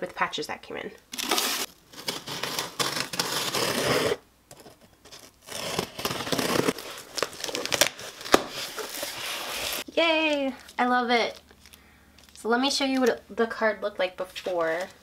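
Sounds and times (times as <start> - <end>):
tape tearing and crackling: 1.1 - 13.1
scissors slitting packing tape: 1.2 - 4.2, 5.1 - 9.8.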